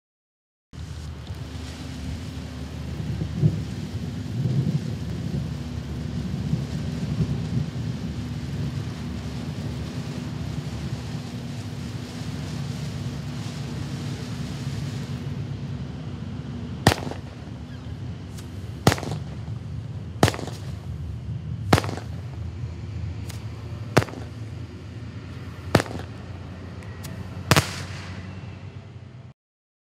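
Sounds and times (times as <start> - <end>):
steady low hum: 0.8 - 29.3
faint firework pops: 16.8 - 19.6, 20.2 - 20.9, 21.6 - 22.5, 23.2 - 24.7, 25.3 - 28.3
firework cake bangs: 16.8 - 21.0, 21.6 - 22.5, 23.2 - 24.6, 25.3 - 28.3.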